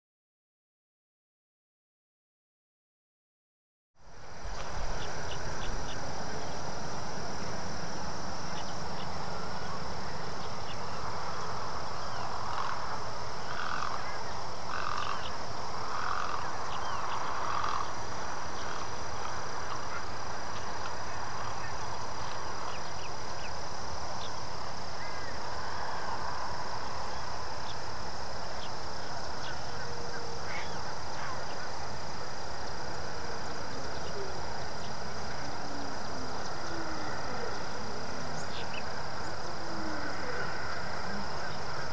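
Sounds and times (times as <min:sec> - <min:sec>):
steady high drone: 0:04.0 - 0:41.9
harsh bird calls: 0:08.5 - 0:23.6.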